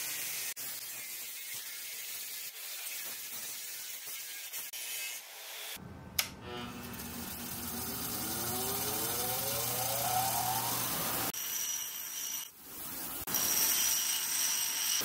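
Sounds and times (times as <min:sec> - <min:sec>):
bench grinder motor whine: 0:06.4 - 0:11.3.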